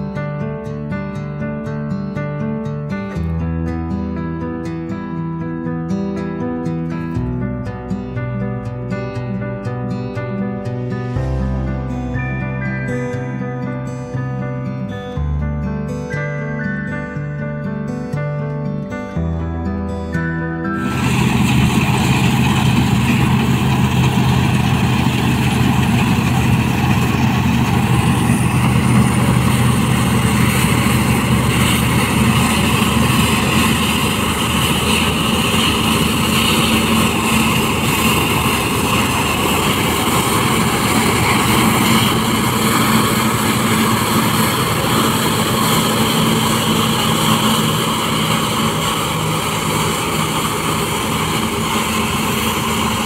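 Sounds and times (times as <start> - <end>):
combine harvester engine drone: 3.0 - 53.0
low hum: 10.4 - 15.8, 20.6 - 53.0
constant rushing noise: 20.8 - 53.0.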